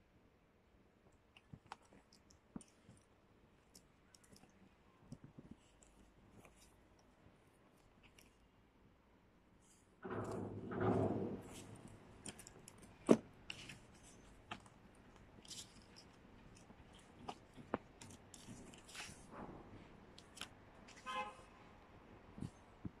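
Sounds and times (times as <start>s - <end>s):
paper packaging rustling: 11.3s - 19.3s.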